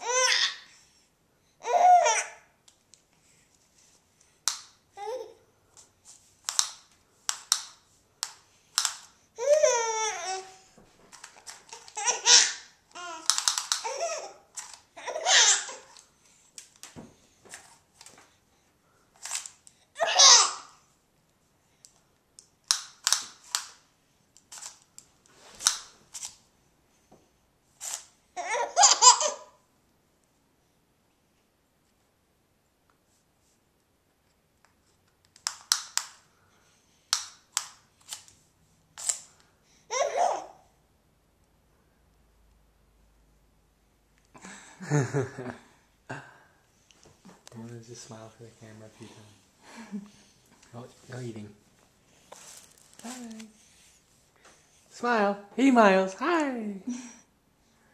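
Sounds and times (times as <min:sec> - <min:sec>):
baby laughing: 0:01.6 - 0:02.4, 0:09.4 - 0:10.6, 0:11.7 - 0:16.0, 0:20.0 - 0:20.8, 0:28.4 - 0:29.6, 0:39.9 - 0:40.6
tape measure snapping and zipping: 0:06.4 - 0:09.1, 0:13.2 - 0:13.9, 0:22.6 - 0:23.8, 0:25.5 - 0:26.4, 0:35.4 - 0:36.2, 0:37.1 - 0:38.4, 0:39.0 - 0:39.3.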